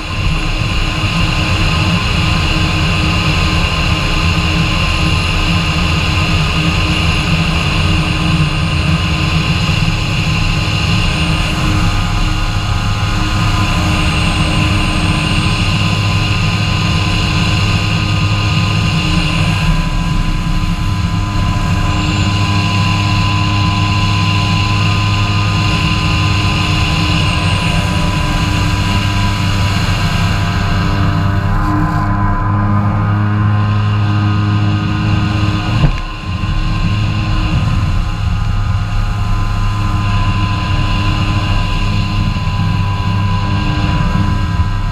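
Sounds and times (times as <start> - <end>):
jet ski engine running: 0.0 - 44.9.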